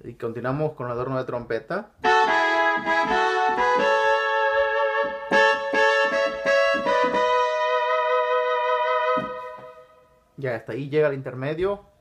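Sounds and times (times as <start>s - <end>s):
keyboard trumpet notes and chords: 2.0s - 10.2s.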